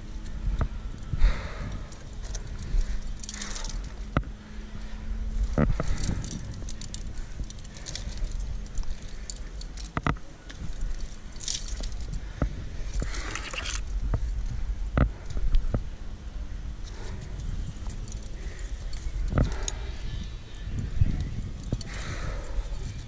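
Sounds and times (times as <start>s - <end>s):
steady low rumble: 0.0s - 23.0s
climbing gear jingling and clinking: 1.6s - 4.1s, 5.4s - 12.3s, 16.9s - 23.0s.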